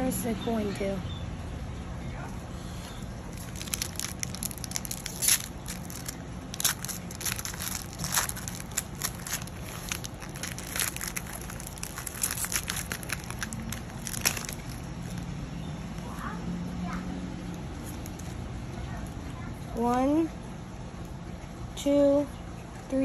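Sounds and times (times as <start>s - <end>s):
foil wrapper crinkling: 3.3s - 15.2s.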